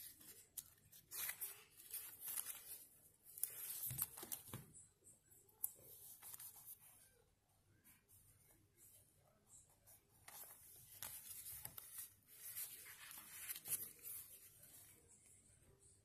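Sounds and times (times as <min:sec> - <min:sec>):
paper pages rustling and flicking: 0:00.0 - 0:04.7, 0:10.2 - 0:14.9.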